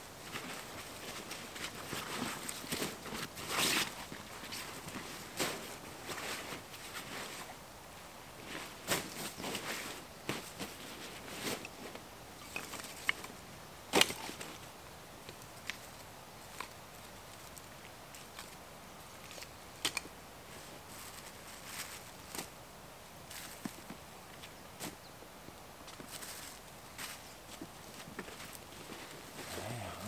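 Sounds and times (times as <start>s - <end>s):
gear rustling on dry leaves: 20.5s - 22.6s, 23.3s - 23.9s, 25.9s - 30.0s.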